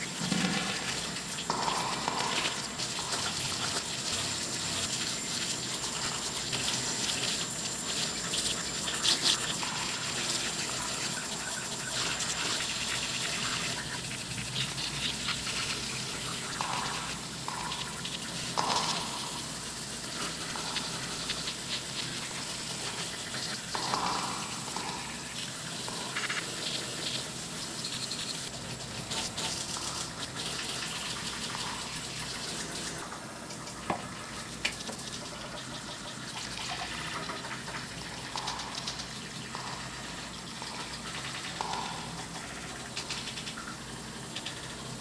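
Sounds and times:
shower spraying water: 0.0s - 33.1s.

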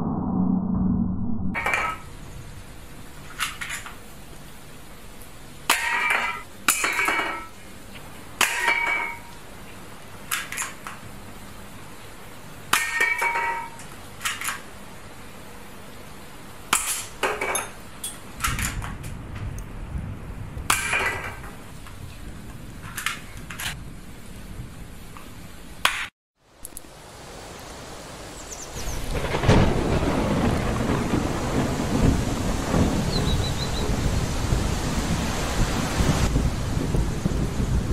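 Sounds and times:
low rumble: 0.0s - 3.2s, 18.9s - 20.8s.

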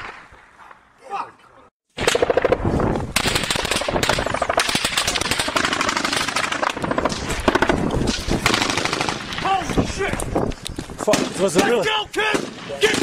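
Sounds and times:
automatic gunfire: 3.2s - 7.8s, 8.4s - 9.3s.

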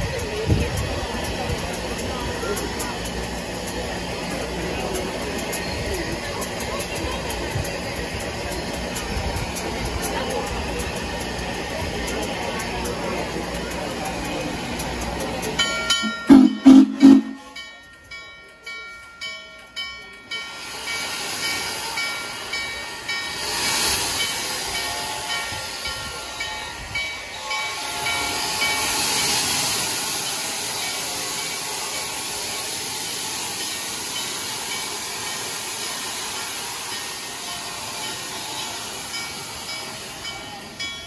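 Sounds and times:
steam hiss with exhaust surges: 0.0s - 17.8s, 19.8s - 41.0s
ringing bell strokes: 15.5s - 41.0s
steam whistle blasts: 16.0s - 17.6s.

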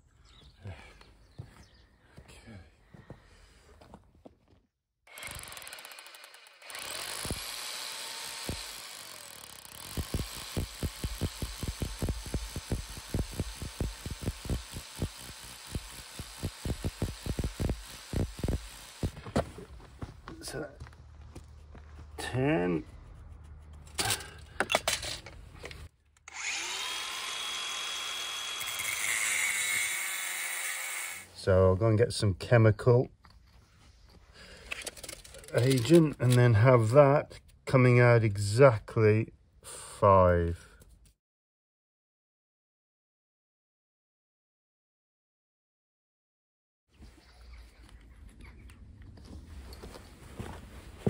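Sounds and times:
angle grinder cutting metal: 5.1s - 19.2s, 26.2s - 31.3s
hammer drill boring into concrete: 5.1s - 19.2s, 26.2s - 31.3s.

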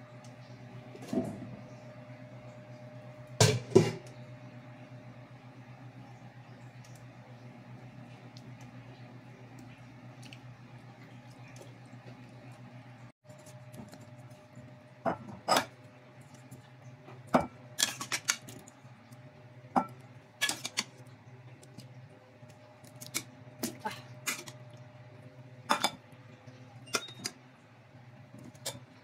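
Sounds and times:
steady low hum: 0.0s - 29.0s
dishes and metal pot clinking: 15.0s - 15.7s, 17.4s - 18.6s, 19.8s - 20.9s, 25.7s - 26.0s, 26.8s - 27.4s.

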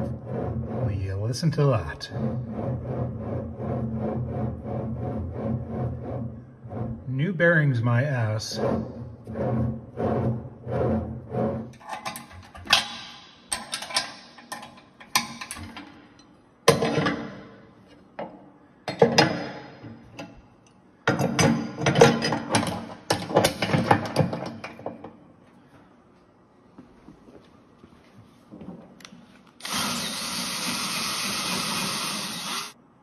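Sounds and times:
metal parts clanking: 11.7s - 17.4s.

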